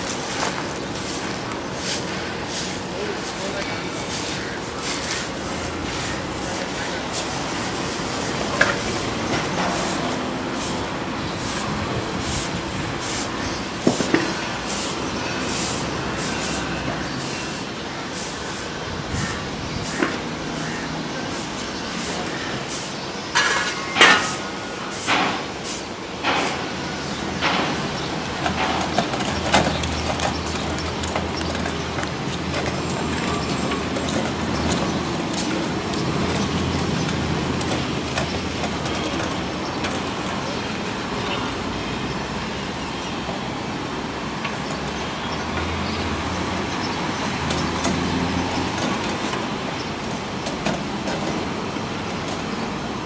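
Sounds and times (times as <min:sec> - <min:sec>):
push brooms sweeping paving: 0:00.0 - 0:42.6, 0:43.4 - 0:53.0
low rumble of road traffic: 0:00.0 - 0:53.0
sharp clicks and knocks: 0:27.4 - 0:40.4.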